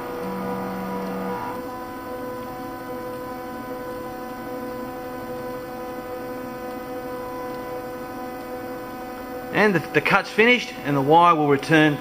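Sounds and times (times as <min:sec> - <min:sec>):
stepper motors whining: 0:00.0 - 0:01.7.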